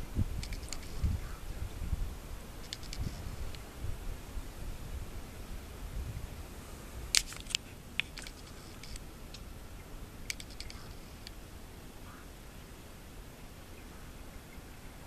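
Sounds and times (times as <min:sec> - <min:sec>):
wind rumbling on microphone: 0:00.0 - 0:15.0
camera handling clicks: 0:00.4 - 0:00.9, 0:07.1 - 0:09.0, 0:10.3 - 0:11.4.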